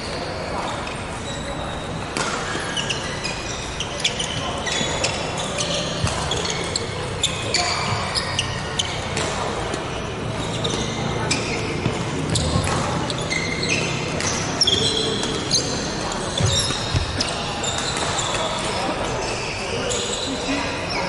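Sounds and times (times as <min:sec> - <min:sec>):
sneakers squeaking on court: 0:00.0 - 0:21.0
voices in hall: 0:00.0 - 0:21.0
racket hitting shuttlecock: 0:02.2 - 0:03.0, 0:05.9 - 0:06.8, 0:09.0 - 0:09.9, 0:11.8 - 0:15.8, 0:16.4 - 0:18.7.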